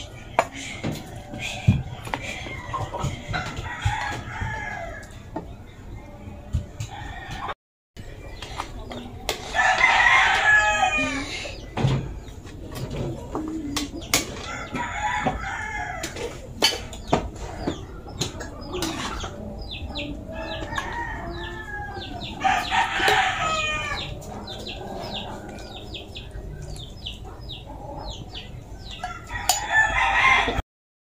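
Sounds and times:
chickens clucking: 0.0 - 30.6
rooster crowing: 0.8 - 5.2, 9.5 - 11.4, 14.4 - 16.2, 19.9 - 26.5, 29.0 - 30.6.

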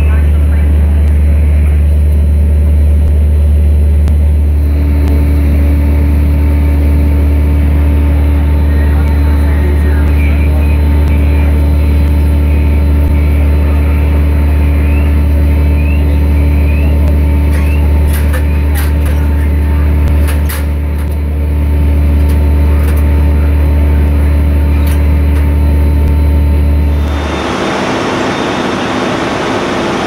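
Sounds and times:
fire engine pump drone: 0.0 - 30.0
sharp clicks and knocks: 17.1 - 21.3.

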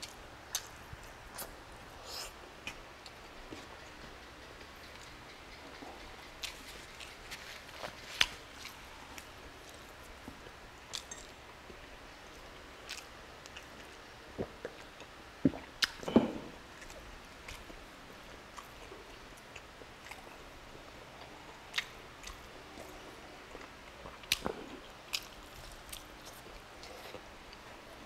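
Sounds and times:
wet chewing and smacking: 21.2 - 27.7.

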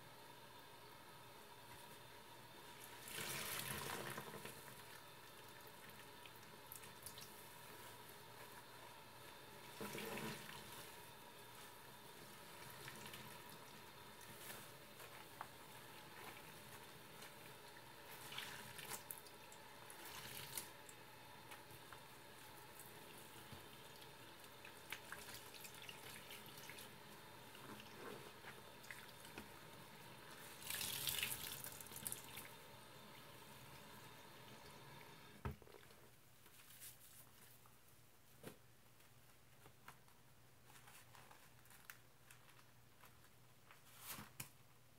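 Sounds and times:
sponge splashing in basin: 2.8 - 4.9, 9.6 - 11.0, 12.2 - 20.9, 30.2 - 32.5.

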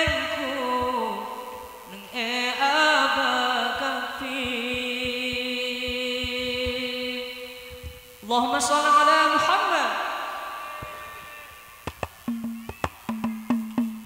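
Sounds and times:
person singing ornamented notes: 0.0 - 10.6.

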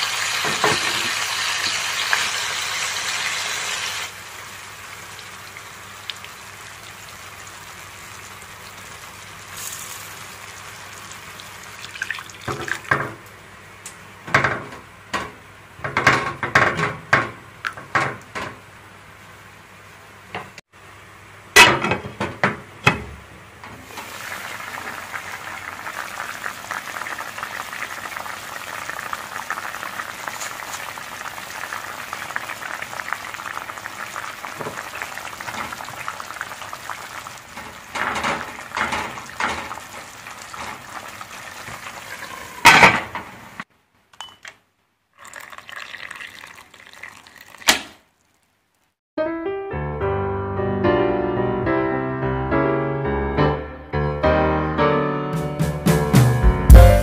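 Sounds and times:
sauce sizzling and bubbling: 0.0 - 13.4, 23.8 - 43.6, 45.1 - 49.0.

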